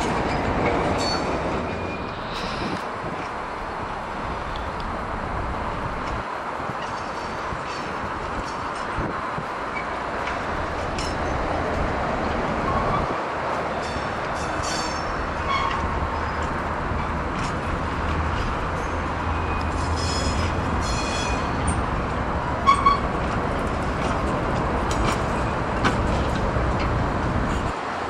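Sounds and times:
wheel squeals: 14.6 - 16.6, 18.8 - 21.6.

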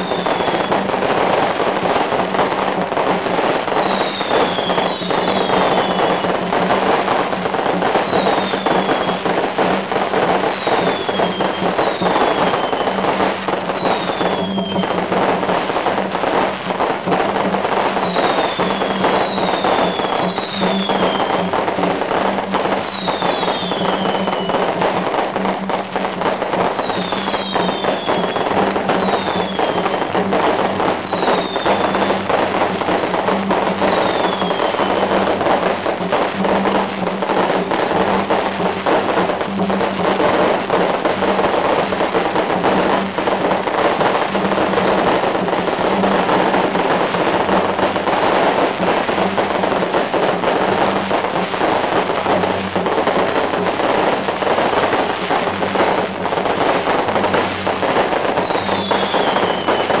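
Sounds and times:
firecrackers crackling: 0.0 - 60.0
short falling whistles: 3.5 - 6.2, 7.8 - 9.2, 10.3 - 14.9, 17.7 - 21.5, 22.8 - 24.5, 26.7 - 29.9, 58.4 - 59.9.

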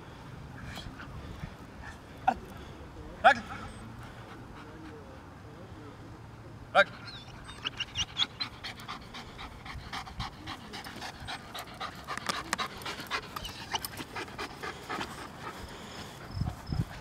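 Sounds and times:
dog panting: 3.6 - 5.4, 6.9 - 17.0.

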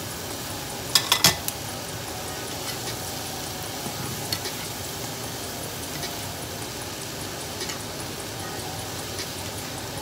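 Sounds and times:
vegetables sizzling in a frying pan: 0.0 - 10.0
metal spoon clacking on pan: 0.9 - 1.4.

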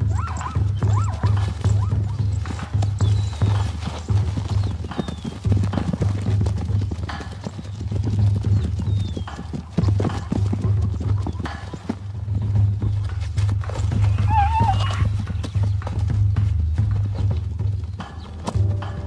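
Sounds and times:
high animal calls: 0.0 - 4.2, 13.7 - 15.6
hoof impacts and scuffling: 0.0 - 19.0
music with pulsing low beat: 0.0 - 19.0.

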